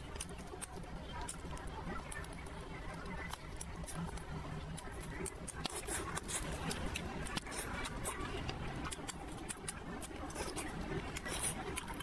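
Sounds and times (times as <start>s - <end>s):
wet chewing mouth clicks: 3.1s - 12.0s.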